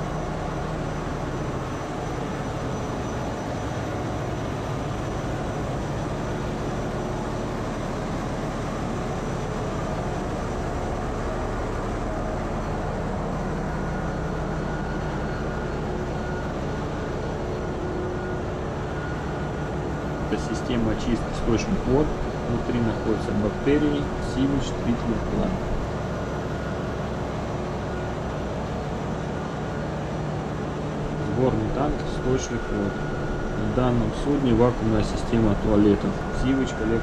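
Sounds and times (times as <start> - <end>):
diesel machinery drone: 0.0 - 37.0.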